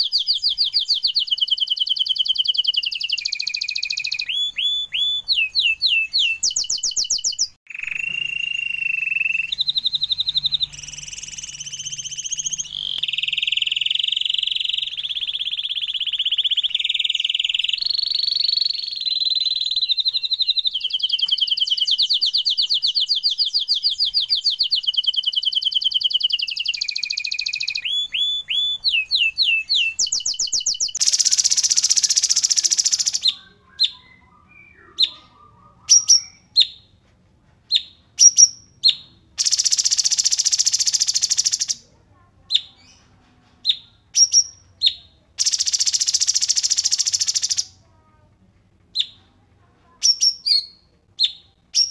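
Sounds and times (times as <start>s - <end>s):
bird slurred whistles: 0.0s - 36.7s
songbird trilling: 0.0s - 36.8s, 43.7s - 47.7s
short sharp chirps: 2.2s - 33.4s.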